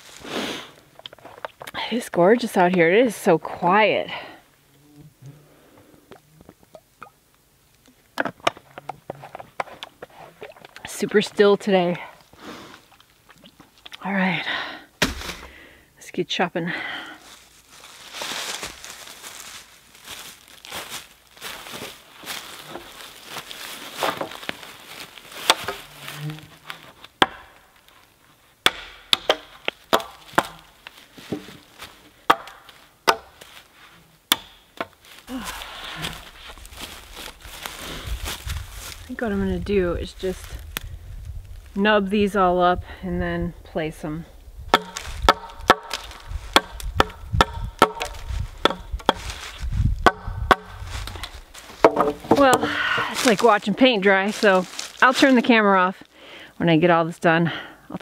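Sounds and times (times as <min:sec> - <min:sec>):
dry leaves rustling: 0:00.0 - 0:00.8, 0:17.2 - 0:28.5, 0:29.6 - 0:34.2, 0:34.8 - 0:41.8, 0:44.8 - 0:55.8
hatchet chopping wood: 0:15.0 - 0:15.5, 0:27.2 - 0:27.6, 0:28.6 - 0:30.7, 0:32.3 - 0:33.4, 0:34.3 - 0:34.9, 0:44.7 - 0:49.4, 0:50.0 - 0:50.8, 0:51.8 - 0:53.1.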